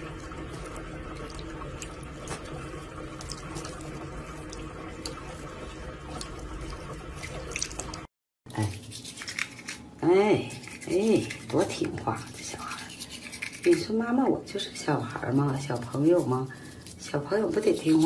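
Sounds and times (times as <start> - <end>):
tap water running into sink: 0.0 - 8.1
water drips and splashes: 0.0 - 8.1
toothbrush scraping: 0.1 - 18.0.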